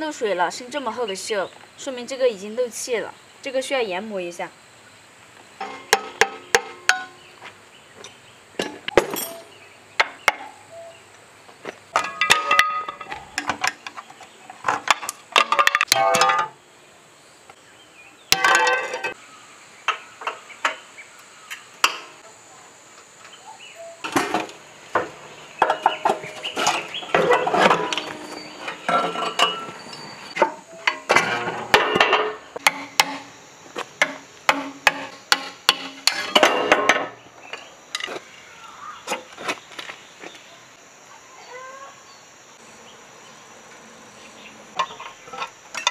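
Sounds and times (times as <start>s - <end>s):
hand tools clinking on metal: 8.0s - 9.6s, 11.9s - 14.0s, 18.3s - 19.2s, 25.6s - 32.8s.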